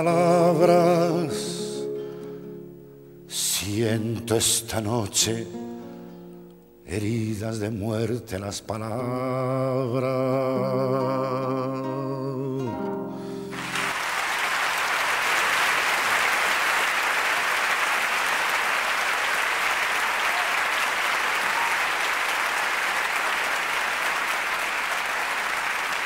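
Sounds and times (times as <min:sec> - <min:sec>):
audience applauding: 0:13.5 - 0:26.0.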